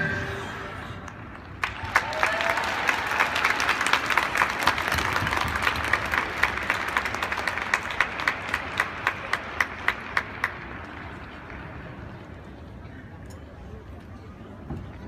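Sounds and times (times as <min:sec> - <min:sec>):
audience applauding: 0:01.3 - 0:11.8.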